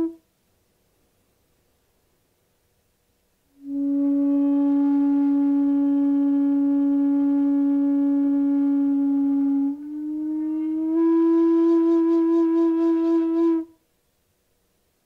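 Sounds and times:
bamboo flute notes: 0:00.0 - 0:00.2, 0:03.6 - 0:13.7.

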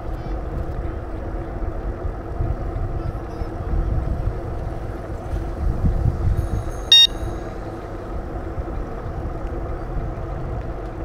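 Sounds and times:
traffic rumble: 0:00.0 - 0:11.0
short high-pitched beep: 0:06.9 - 0:07.2.

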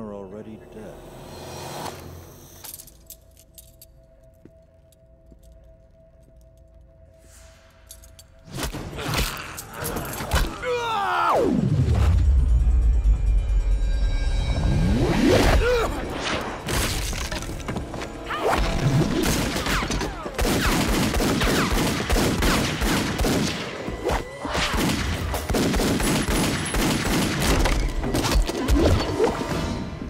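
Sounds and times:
pistol shots: 0:19.2 - 0:23.8, 0:24.6 - 0:27.9.

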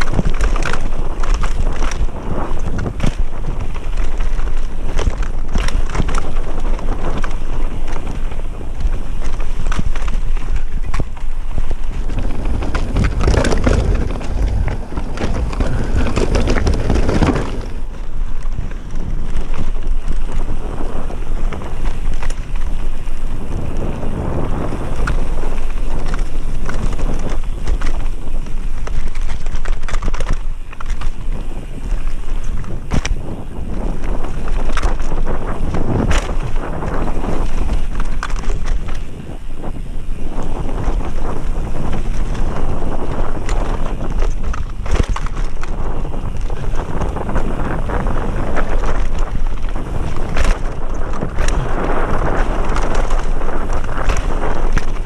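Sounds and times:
bike rattling over bumps: 0:00.0 - 0:55.0
bike tyres rolling on dirt: 0:00.0 - 0:55.0
wind buffeting on microphone: 0:00.0 - 0:55.0.

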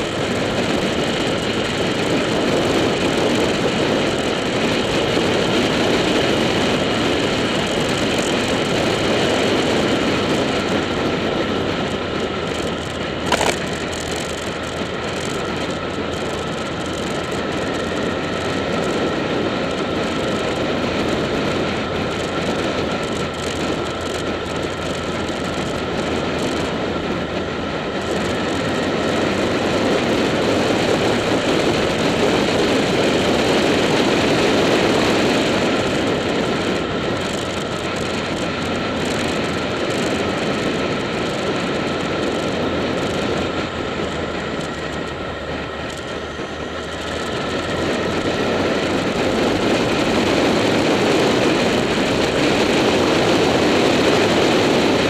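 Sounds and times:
motorcycle engine drone: 0:00.0 - 0:55.0
wind rush on microphone: 0:00.0 - 0:55.0
sharp click: 0:13.2 - 0:14.5.

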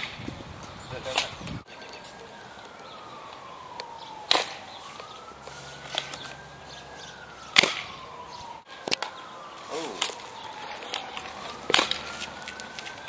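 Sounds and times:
faint siren wailing: 0:00.0 - 0:13.0.

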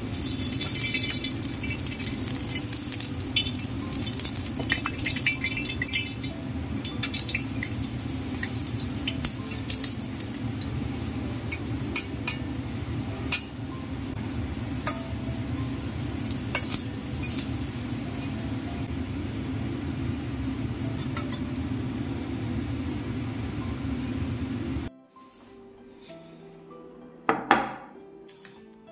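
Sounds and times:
food sizzling in oil: 0:00.0 - 0:19.5.

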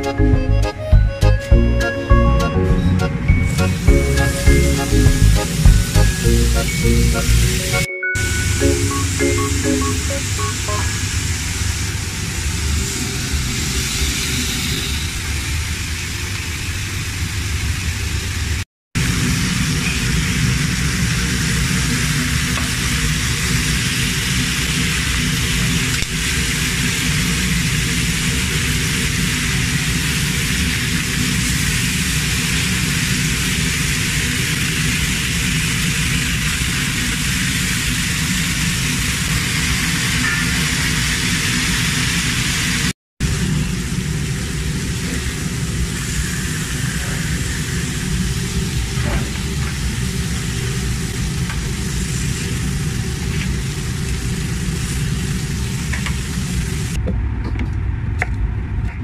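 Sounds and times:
ribs sizzling on a grill: 0:04.0 - 0:07.8, 0:20.6 - 0:39.8.

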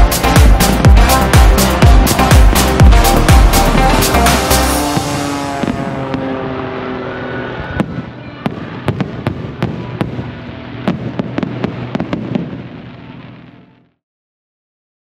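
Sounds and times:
fireworks crackle and rumble: 0:01.9 - 0:14.0.

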